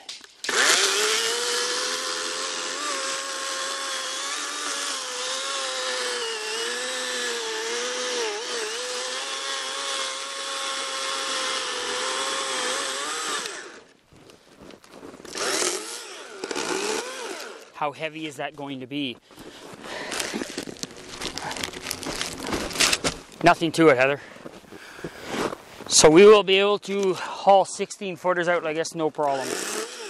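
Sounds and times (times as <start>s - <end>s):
chainsaw cutting through log: 0.4s - 13.9s, 15.3s - 17.8s, 20.0s - 23.2s, 29.2s - 30.0s.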